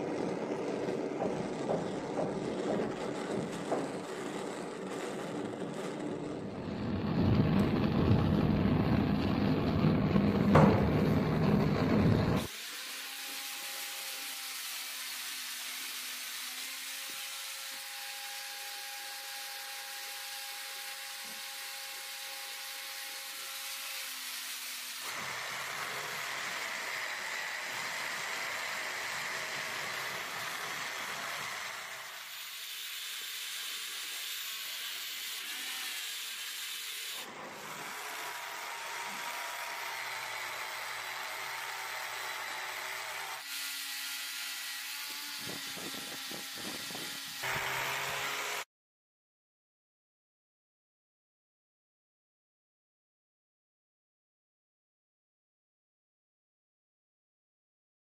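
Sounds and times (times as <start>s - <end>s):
gas torch hissing: 1.9s - 12.6s.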